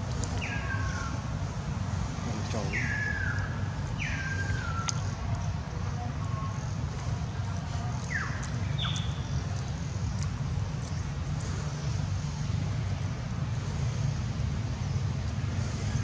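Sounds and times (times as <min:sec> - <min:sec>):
low outdoor rumble: 0:00.0 - 0:16.0
high whistled calls: 0:02.5 - 0:05.2.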